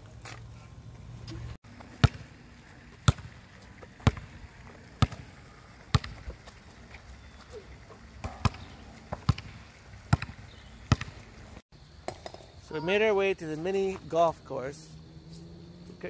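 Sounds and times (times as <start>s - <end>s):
basketball bouncing on asphalt: 0.1s - 12.6s.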